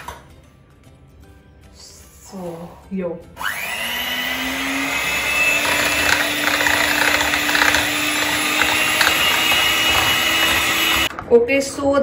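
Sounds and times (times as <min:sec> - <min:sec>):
electric hand mixer running: 0:03.4 - 0:11.1
beaters clicking against bowl: 0:05.6 - 0:11.1.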